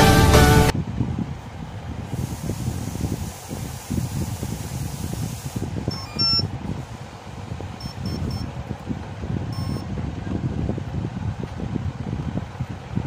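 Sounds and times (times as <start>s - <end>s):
drone motor beeps: 5.9s - 6.5s, 7.8s - 8.5s, 9.5s - 9.8s.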